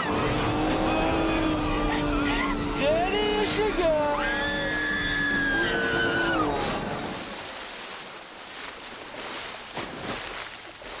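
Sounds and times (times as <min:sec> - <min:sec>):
water washing and splashing: 0:04.7 - 0:11.0.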